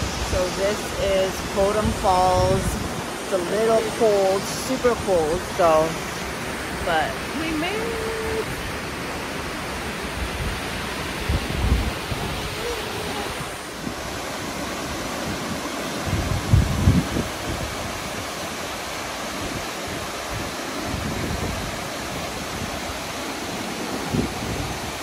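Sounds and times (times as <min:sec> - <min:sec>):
wind buffeting microphone: 0:00.0 - 0:04.3, 0:09.8 - 0:23.1, 0:23.9 - 0:25.0
waterfall rushing: 0:00.0 - 0:25.0.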